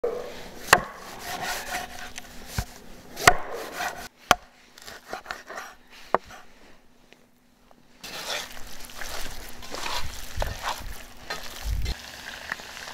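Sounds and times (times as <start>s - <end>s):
cleaver chopping on wooden board: 0.7s - 1.4s, 3.2s - 4.5s
soft rustling of meat handled: 8.0s - 12.0s.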